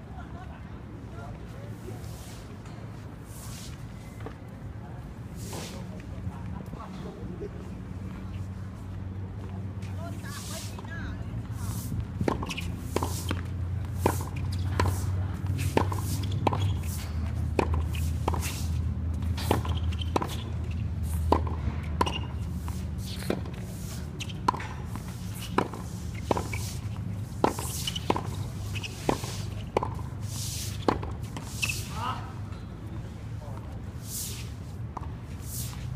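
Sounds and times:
tennis ball hit by rackets: 15.6s - 18.7s, 21.2s - 32.0s.

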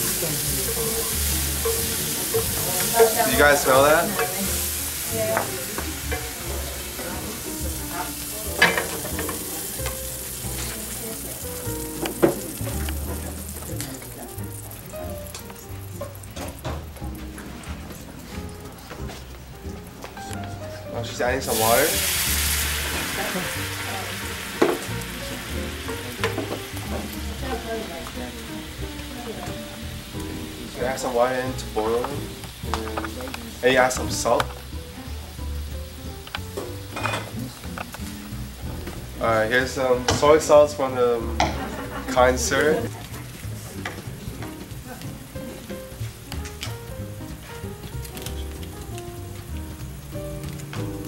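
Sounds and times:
oil sizzling in a frying pan: 0.0s - 51.0s
wooden spatula knocking pan: 0.7s - 7.0s.

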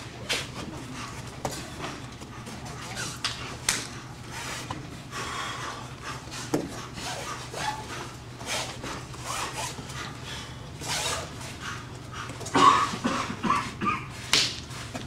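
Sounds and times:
rasping swishes on foam mats: 6.1s - 10.1s.

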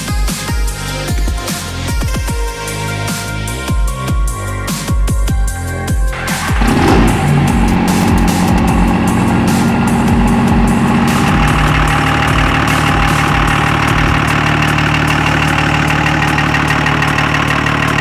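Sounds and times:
diesel engine idling: 6.2s - 18.0s.

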